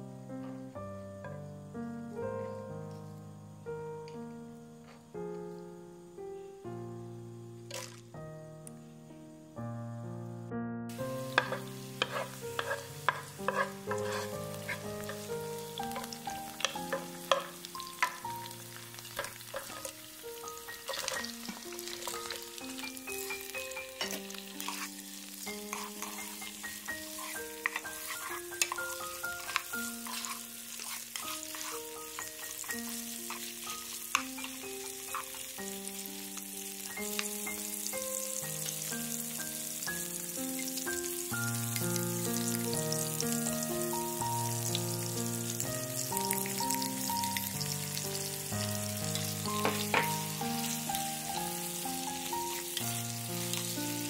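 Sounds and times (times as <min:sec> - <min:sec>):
soft background music: 0:00.0 - 0:54.0
shrimp sizzling in hot oil: 0:07.7 - 0:08.2, 0:10.9 - 0:54.0
wooden spatula knocking pan: 0:11.3 - 0:15.2, 0:49.6 - 0:50.2.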